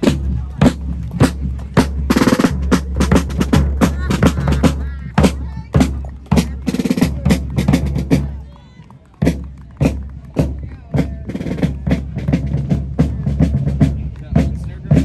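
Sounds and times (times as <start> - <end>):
bass drum: 0.0 - 8.4.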